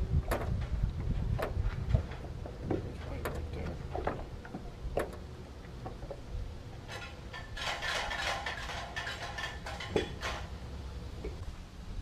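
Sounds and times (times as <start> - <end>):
wind rumbling on microphone: 0.0 - 8.8
rattling and rustling: 0.0 - 11.4.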